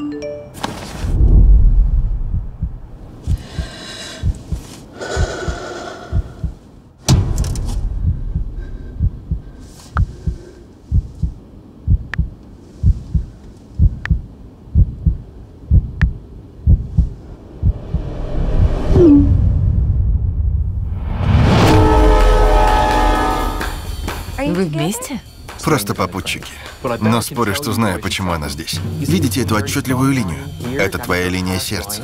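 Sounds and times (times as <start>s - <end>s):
low heartbeat-like thudding: 1.1s - 21.1s
sharp hit: 7.0s - 9.3s, 17.4s - 24.4s.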